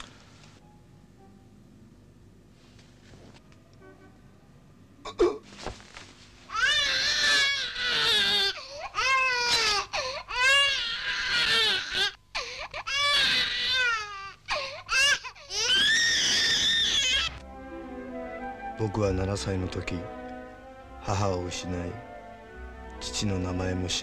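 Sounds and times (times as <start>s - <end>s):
baby crying: 6.5s - 17.4s.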